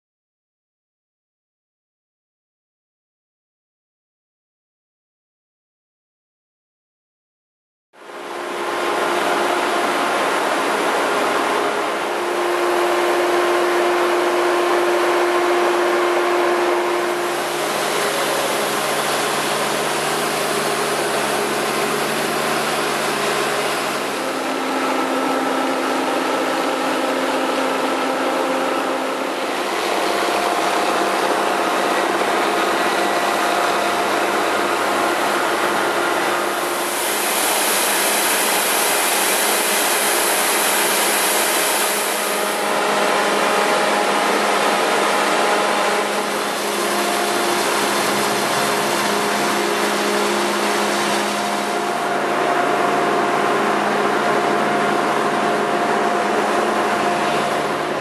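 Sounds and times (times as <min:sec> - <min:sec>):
snow groomer engine droning: 0:08.0 - 0:58.0
snowmaking guns rushing hiss: 0:08.5 - 0:54.4.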